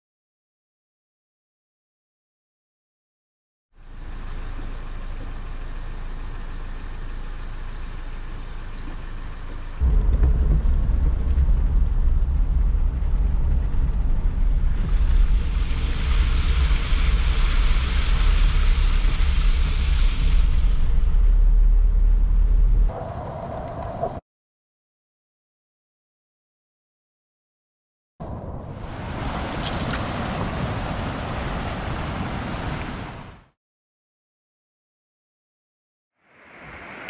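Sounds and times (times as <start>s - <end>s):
car engine and tyres rumbling: 3.8s - 24.2s, 28.2s - 33.0s
rain on car glass: 9.8s - 21.9s
loud hiss of water spray: 14.9s - 21.0s.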